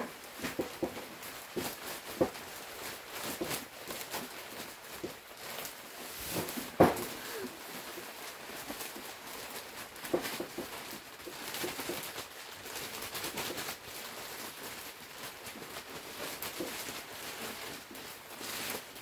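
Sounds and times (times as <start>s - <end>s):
bag clicks and knocks: 0.0s - 12.2s
plastic sack rustling: 0.0s - 19.0s
soil pattering as it falls: 0.0s - 19.0s.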